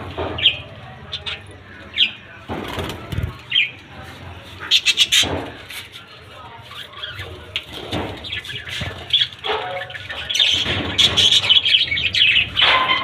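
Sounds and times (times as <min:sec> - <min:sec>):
budgerigars chattering and chirping: 0:00.2 - 0:02.4, 0:03.2 - 0:05.7, 0:06.6 - 0:13.0
wings flapping: 0:02.5 - 0:03.4.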